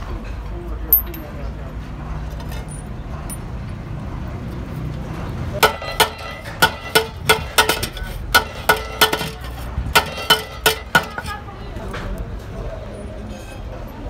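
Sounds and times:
hammer striking steel wheel rim: 5.6s - 11.5s.

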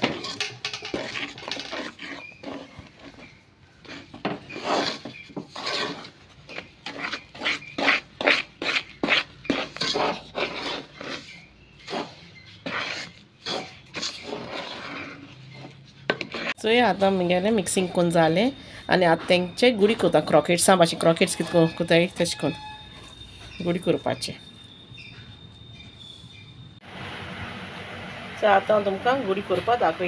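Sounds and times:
spoon stirring and scraping pan: 0.0s - 24.6s.

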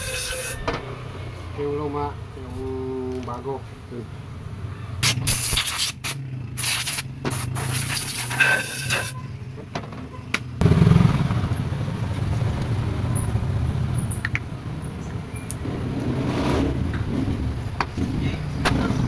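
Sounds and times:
compressed air gun hissing: 5.0s - 9.1s.

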